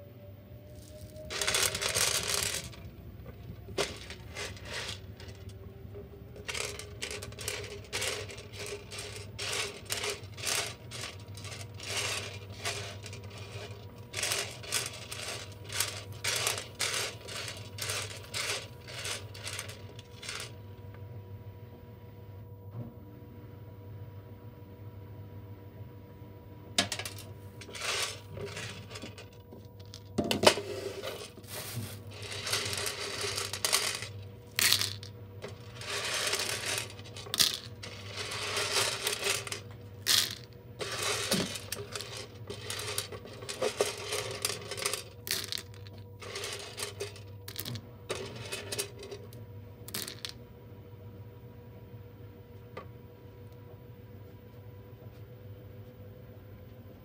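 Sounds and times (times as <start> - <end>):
dried beans clattering into colander: 0.8 - 5.6, 6.2 - 20.6, 26.8 - 49.3, 49.9 - 50.4.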